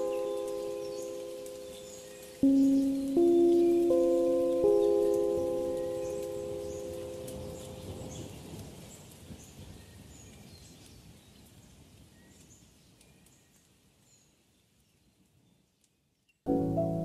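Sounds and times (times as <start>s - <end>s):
high bird chirps: 0.0s - 8.3s.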